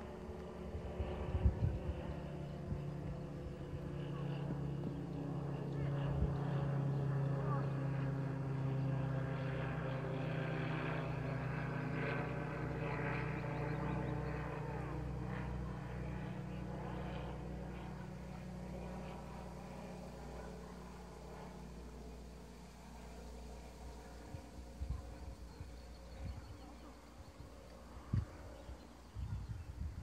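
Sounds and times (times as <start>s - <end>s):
distant engine drone: 0.0s - 30.0s.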